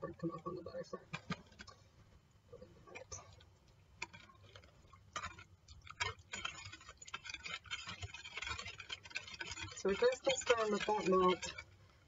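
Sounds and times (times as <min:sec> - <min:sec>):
whisk clicking against bowl: 0:04.0 - 0:12.0.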